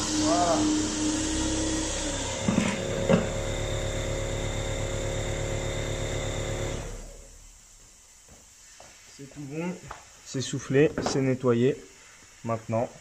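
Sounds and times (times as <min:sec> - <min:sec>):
vacuum cleaner running: 0:00.0 - 0:07.4.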